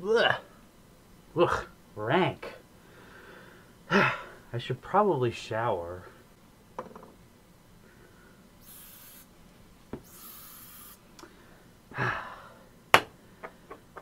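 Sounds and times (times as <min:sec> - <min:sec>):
aerosol spray hissing: 0:08.6 - 0:09.3, 0:10.0 - 0:11.0.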